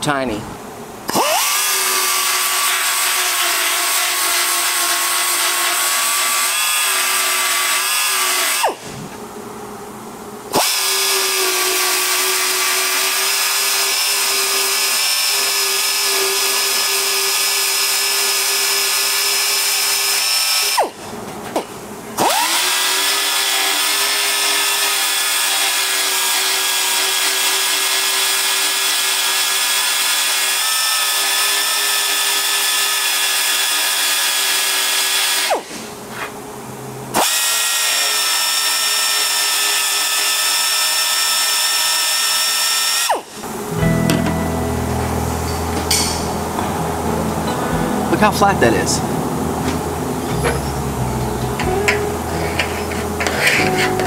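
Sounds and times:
belt sander grinding metal: 0:01.1 - 0:08.9, 0:10.5 - 0:21.0, 0:22.2 - 0:35.8, 0:49.5 - 0:54.0.

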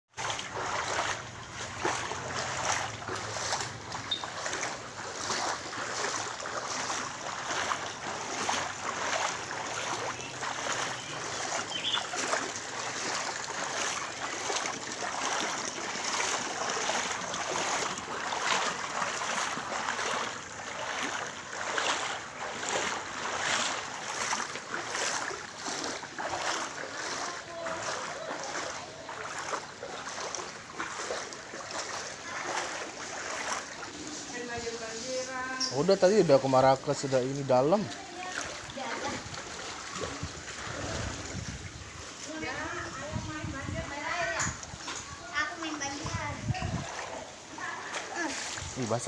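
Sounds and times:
wading through floodwater: 0:00.1 - 0:49.0.

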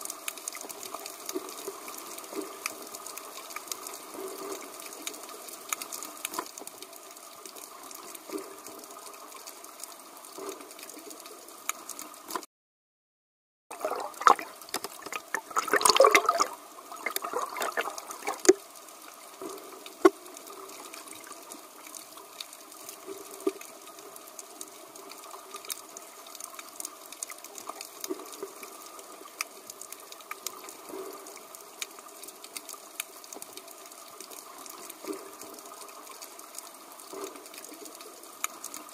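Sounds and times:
clicks and crackles: 0:00.1 - 0:12.5, 0:14.1 - 0:38.9
rush of bubbling: 0:13.7 - 0:18.6.

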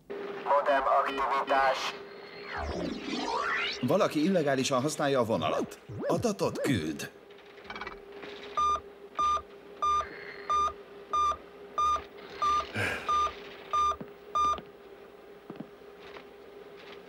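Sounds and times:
steady low hum: 0:00.0 - 0:17.0
short electronic beeps: 0:08.6 - 0:14.6.

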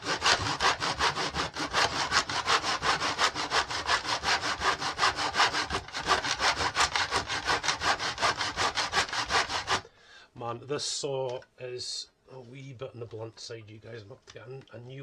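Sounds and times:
hand saw cutting wood: 0:00.0 - 0:09.9.

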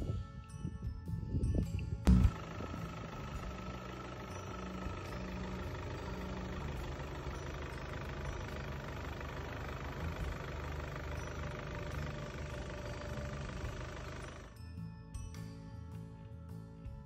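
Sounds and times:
diesel engine idling: 0:02.1 - 0:14.6.

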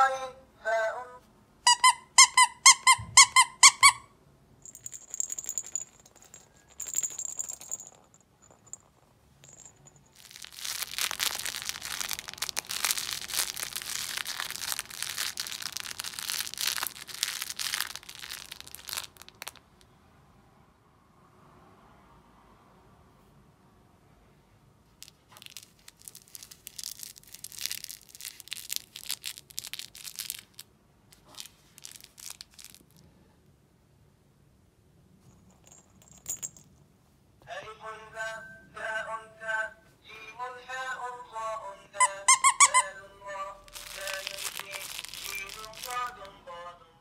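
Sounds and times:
toy squeaker squeezed: 0:01.7 - 0:04.1, 0:42.0 - 0:43.0
fabric toy crackling rustle: 0:10.1 - 0:19.6, 0:25.1 - 0:33.0, 0:43.6 - 0:46.3.

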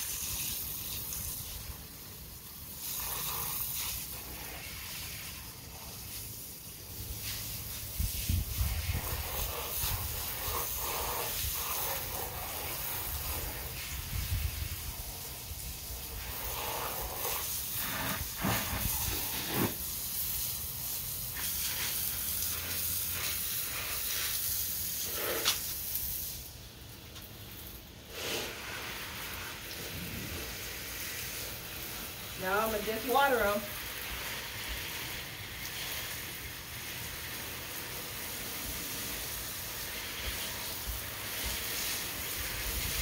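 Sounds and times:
garden hose spraying water on concrete: 0:00.0 - 0:43.0.

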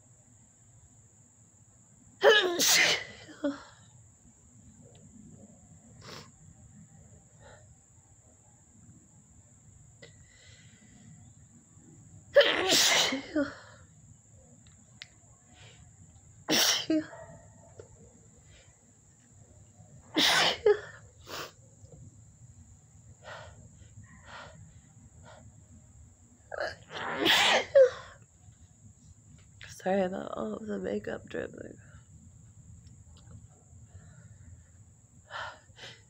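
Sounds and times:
woman sneezing: 0:02.2 - 0:03.3, 0:12.4 - 0:13.6, 0:16.5 - 0:17.1, 0:20.2 - 0:21.0, 0:26.9 - 0:28.1.

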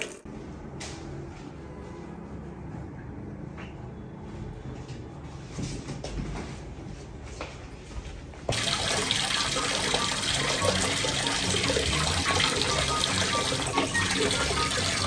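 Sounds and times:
tap water pouring into basin: 0:00.0 - 0:00.3, 0:08.5 - 0:15.0.

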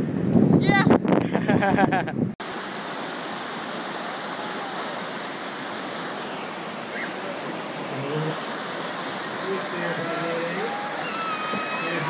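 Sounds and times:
whitewater rapids roaring: 0:02.4 - 0:12.0.

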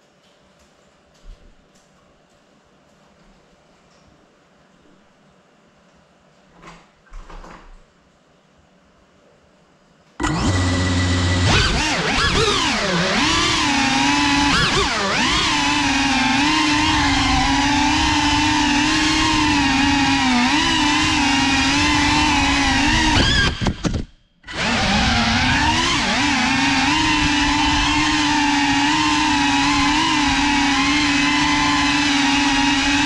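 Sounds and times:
quadcopter motors and propellers whining: 0:10.2 - 0:33.0.

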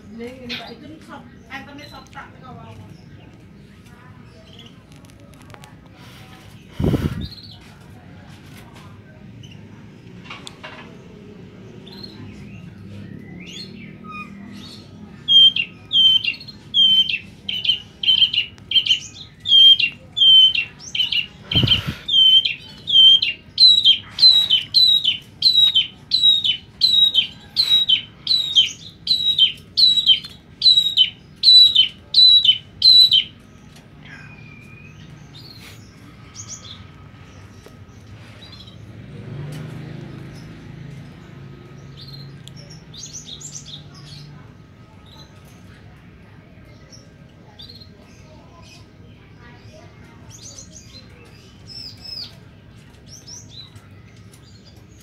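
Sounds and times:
bird calling repeated notes: 0:15.3 - 0:33.4.

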